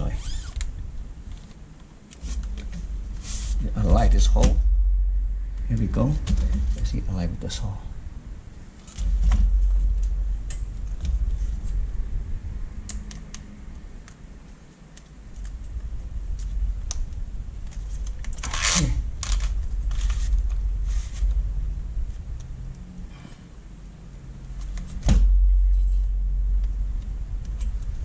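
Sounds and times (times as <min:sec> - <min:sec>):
rustling scrape: 0:02.1 - 0:03.9, 0:17.8 - 0:21.5
low rumble: 0:02.3 - 0:14.0, 0:15.3 - 0:28.0.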